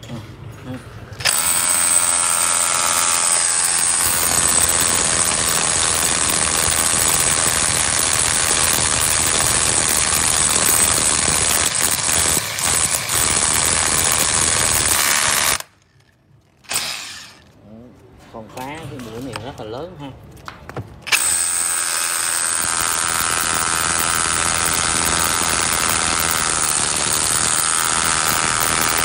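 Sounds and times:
rotary hammer drilling concrete: 0:01.2 - 0:15.8, 0:16.6 - 0:17.4, 0:21.1 - 0:29.0.

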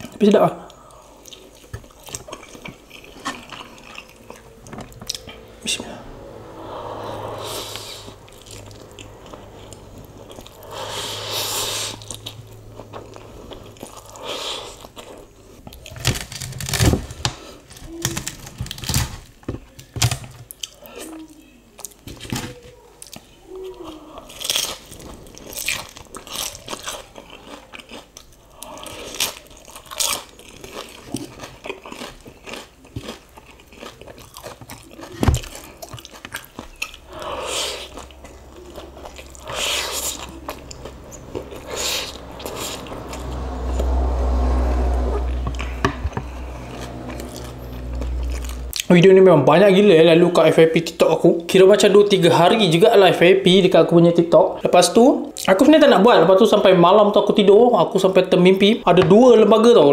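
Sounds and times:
chewing with wet mouth smacks: 0:01.2 - 0:05.4, 0:23.0 - 0:43.2
noodles slurped: 0:07.0 - 0:15.9, 0:23.9 - 0:43.2.

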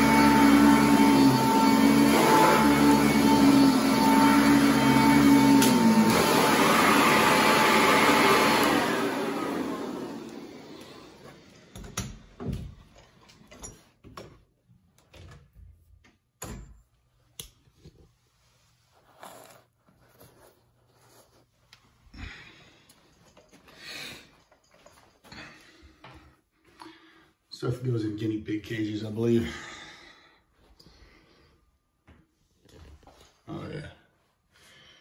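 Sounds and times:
upright vacuum motor winding down: 0:00.0 - 0:12.0.

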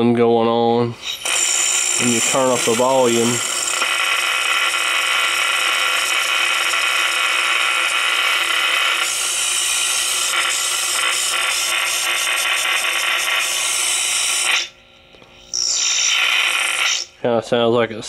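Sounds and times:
radio high-pitched squeal: 0:01.0 - 0:14.7, 0:15.5 - 0:17.2
radio hiss: 0:02.0 - 0:09.1, 0:15.7 - 0:17.1.

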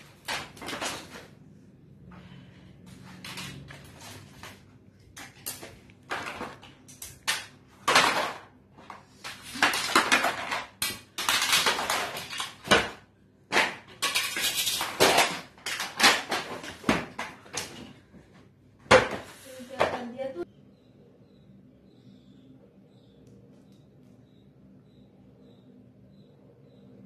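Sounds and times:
plastic toy pieces clattering: 0:00.0 - 0:01.3, 0:05.2 - 0:17.8.

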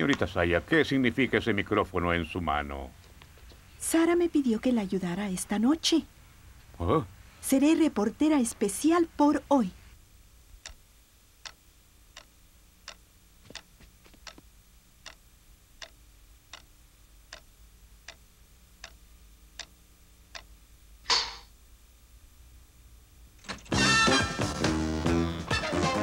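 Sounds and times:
clock ticking: 0:11.4 - 0:20.6.

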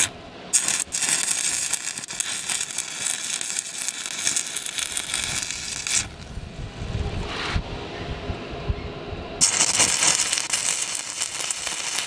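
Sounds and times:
welding arc crackling: 0:00.0 - 0:06.4, 0:09.4 - 0:12.0.

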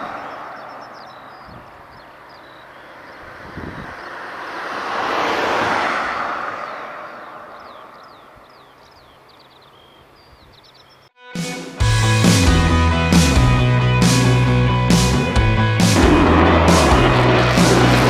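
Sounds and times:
small birds chirping: 0:00.0 - 0:04.4, 0:06.6 - 0:11.2
jet aircraft passing: 0:02.8 - 0:08.1, 0:15.7 - 0:18.0
music: 0:11.2 - 0:18.0.

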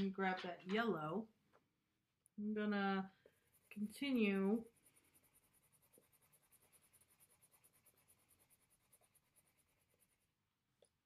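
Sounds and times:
colored pencil scratching on paper: 0:02.6 - 0:10.4.

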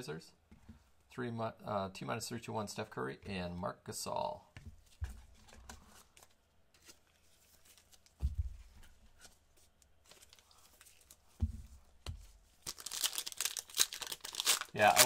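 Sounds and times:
wrapper tearing and crinkling: 0:12.6 - 0:15.0.

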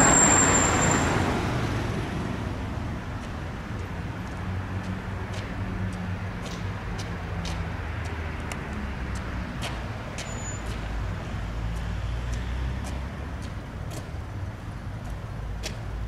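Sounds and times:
tram rumbling on rails: 0:00.0 - 0:07.7.

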